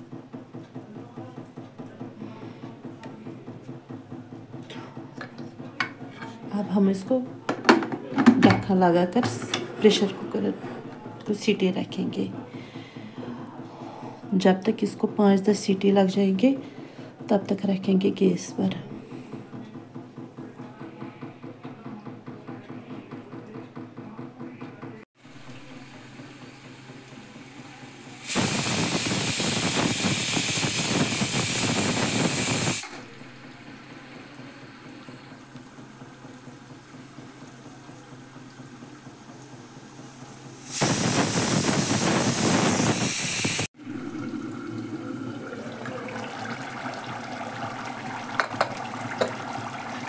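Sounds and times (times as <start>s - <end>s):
pressure cooker whistling: 25.4s - 33.2s, 40.0s - 43.7s.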